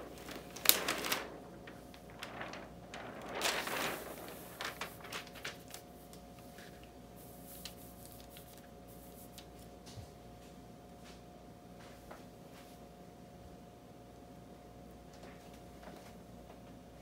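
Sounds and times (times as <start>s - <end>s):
plastic tape crinkling: 0.0s - 9.7s
faint steady hum: 0.0s - 17.0s.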